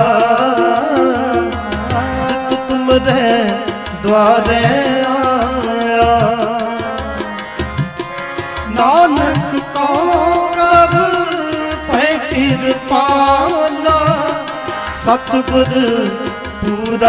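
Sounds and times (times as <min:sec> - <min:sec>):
held melodic tones: 0:00.0 - 0:17.0
sliding melody: 0:00.0 - 0:17.0
tabla beat: 0:00.0 - 0:17.0.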